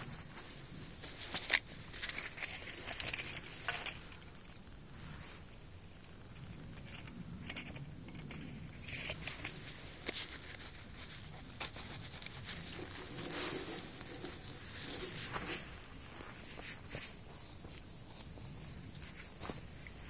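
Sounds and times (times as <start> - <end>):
gloves rustling dry grass: 8.9 - 20.0.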